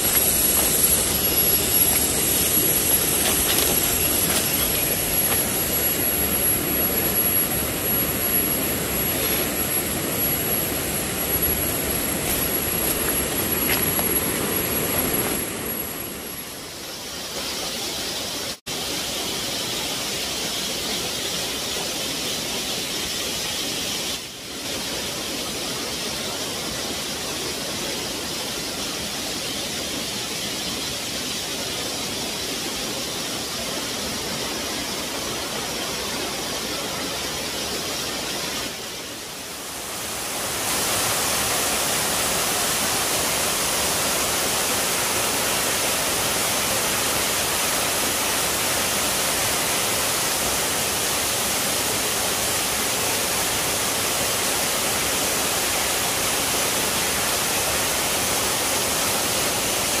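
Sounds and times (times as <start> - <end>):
waterfall pouring over rocks: 0.0 - 7.2, 39.1 - 60.0.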